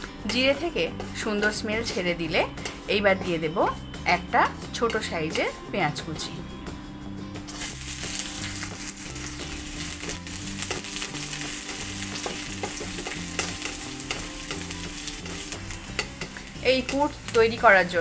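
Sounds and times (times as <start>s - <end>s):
spatula scraping and tapping pan: 1.8s - 2.9s, 7.5s - 17.6s
onion sizzling in oil: 7.5s - 18.0s.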